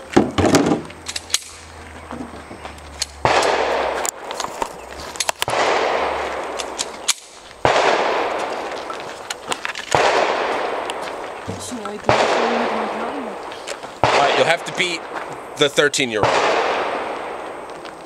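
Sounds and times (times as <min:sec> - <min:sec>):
handgun shots: 0:03.0 - 0:04.0, 0:05.2 - 0:08.5, 0:14.0 - 0:14.6.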